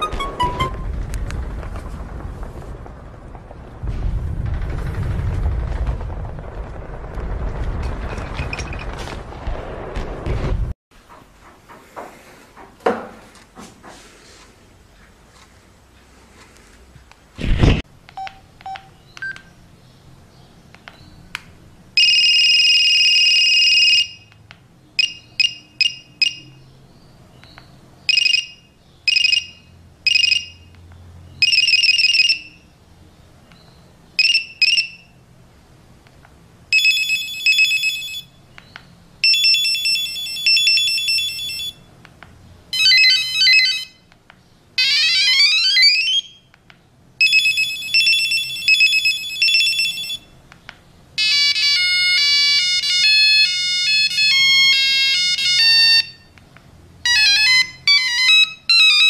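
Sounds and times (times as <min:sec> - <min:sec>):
electronic beeping ringtones: 0:00.0 - 0:01.0.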